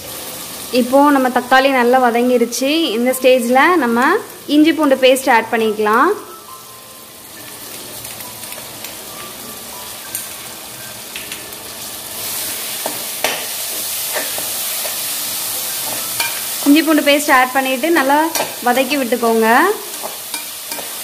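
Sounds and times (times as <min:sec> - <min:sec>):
vegetables sizzling in hot oil: 0:00.0 - 0:21.0
spoon clinking and scraping pan: 0:14.1 - 0:15.1, 0:15.7 - 0:16.6, 0:18.2 - 0:18.7, 0:19.9 - 0:21.0.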